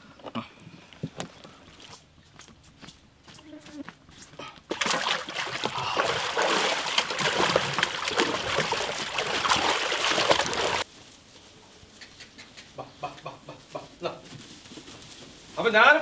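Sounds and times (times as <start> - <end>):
water splashing in metal pot: 4.7 - 10.8.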